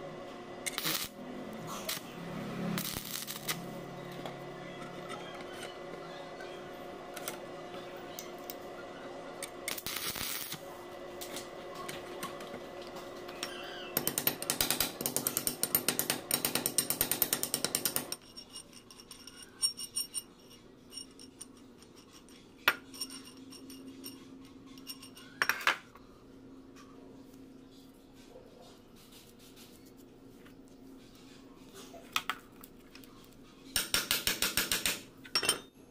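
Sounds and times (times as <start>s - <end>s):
rapid metal clicking and tapping: 14.0s - 18.2s, 33.8s - 35.1s.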